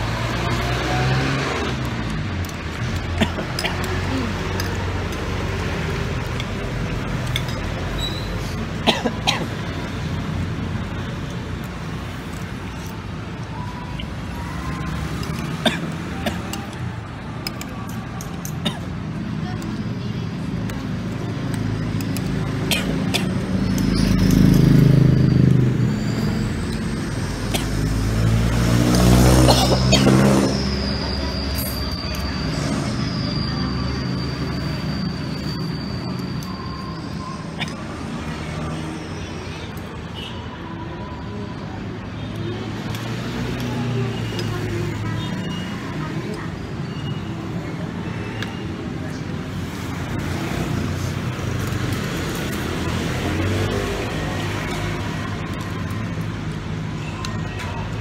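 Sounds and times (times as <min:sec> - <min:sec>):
road traffic rumble: 0:00.0 - 0:58.0
vehicles passing: 0:00.0 - 0:58.0
utensils clinking on ceramic: 0:07.2 - 0:07.8.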